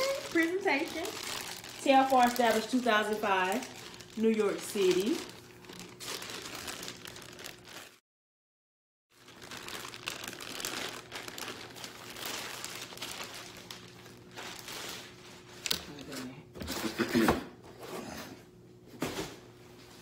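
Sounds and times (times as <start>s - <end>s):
plastic bag crinkling: 0.0s - 8.0s, 9.2s - 15.9s.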